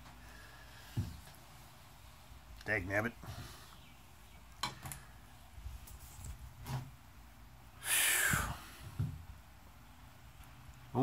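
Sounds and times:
man breathing out loudly: 7.8s - 9.0s.

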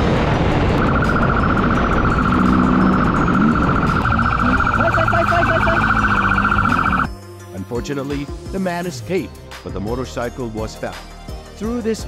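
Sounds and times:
police siren warbling: 0.2s - 7.1s
motorcycle engine revving: 0.6s - 7.1s.

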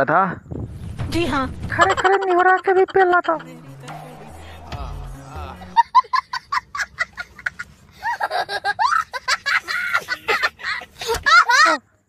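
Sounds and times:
small child laughing: 5.8s - 11.8s.

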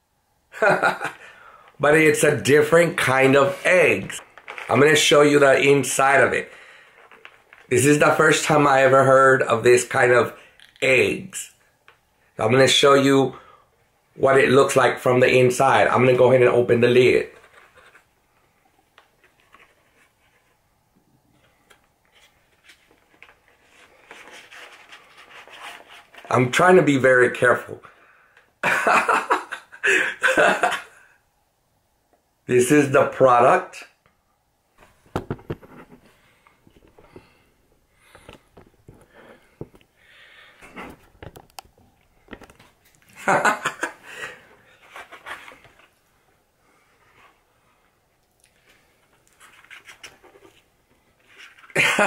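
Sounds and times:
cardboard egg carton crackling: 4.1s - 5.2s.

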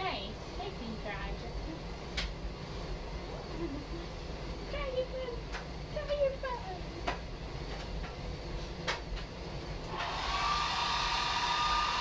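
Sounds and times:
hair dryer whining: 9.8s - 12.0s.

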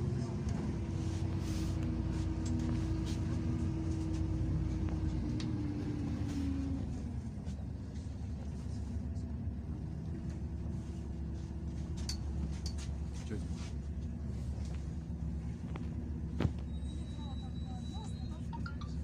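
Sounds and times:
bus engine and road rumble: 0.0s - 19.0s.

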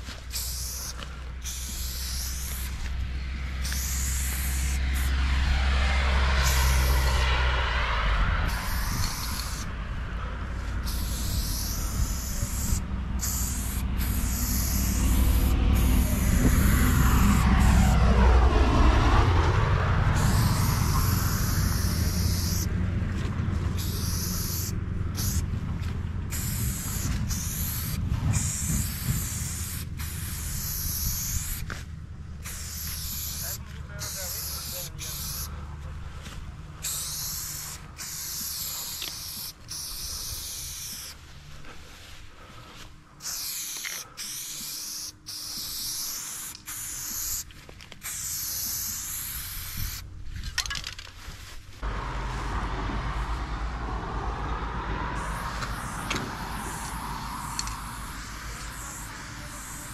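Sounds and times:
spray paint can hissing: 0.0s - 7.3s, 8.4s - 9.7s, 10.8s - 18.0s, 20.0s - 22.7s, 23.7s - 25.5s, 26.3s - 35.5s, 36.8s - 41.2s, 43.2s - 50.0s, 55.1s - 59.9s
road traffic passing: 0.0s - 59.9s.

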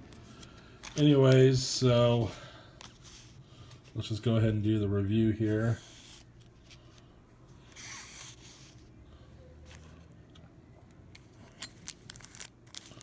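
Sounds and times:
soft plastic rustle: 0.0s - 9.0s, 11.2s - 13.0s.

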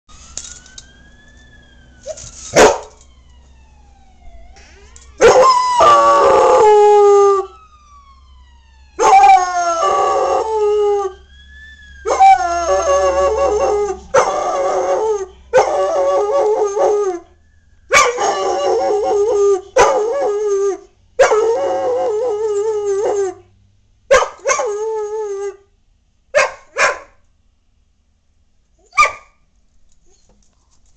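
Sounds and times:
fire truck sirens wailing: 0.1s - 23.6s
dog howling: 5.2s - 7.5s, 9.0s - 11.2s, 12.0s - 17.3s, 17.9s - 23.4s.

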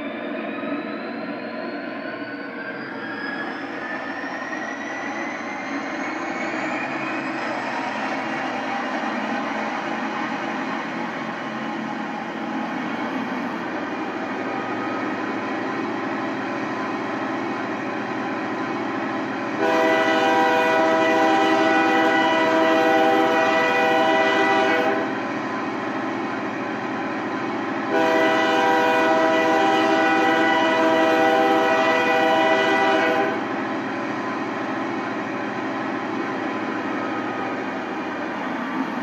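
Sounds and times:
locomotive horn blasts: 19.6s - 25.2s, 27.9s - 33.5s.

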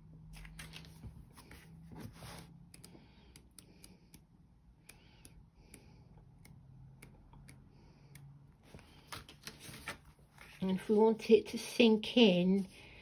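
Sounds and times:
paper pages turning: 0.3s - 2.5s, 8.7s - 10.6s.

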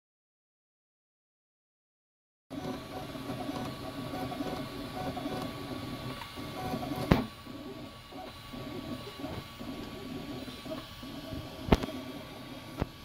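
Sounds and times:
printer stepper motors whirring: 2.5s - 13.0s.

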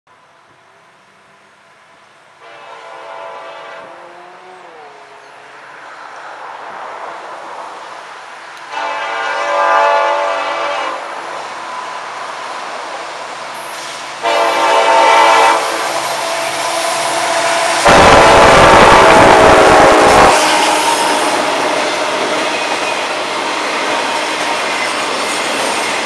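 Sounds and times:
train rumble: 0.4s - 26.0s
locomotive air horn blasts: 2.4s - 4.5s, 8.7s - 11.1s, 14.2s - 22.8s.

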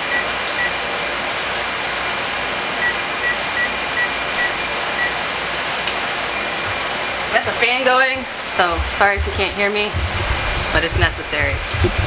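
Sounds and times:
keypad beeps: 0.0s - 0.8s, 2.8s - 5.2s
exhaust fan running: 0.0s - 12.0s.

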